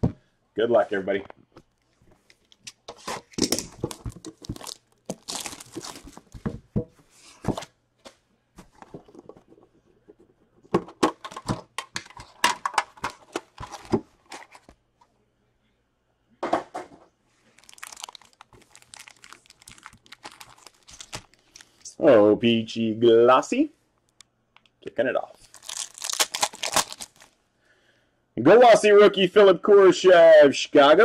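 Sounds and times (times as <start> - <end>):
wrappers crinkling and clicking: 1.7 - 6.4, 17.5 - 21.9, 25.4 - 27.4
plastic wrapping tearing: 3.4 - 6.3, 17.5 - 21.9, 25.4 - 27.4.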